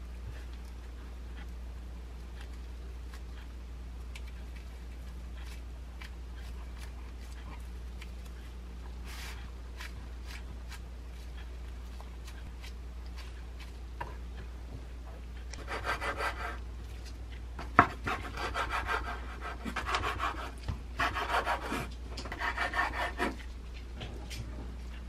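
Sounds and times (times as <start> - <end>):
knife sawing through seaweed roll: 18.0 - 23.4.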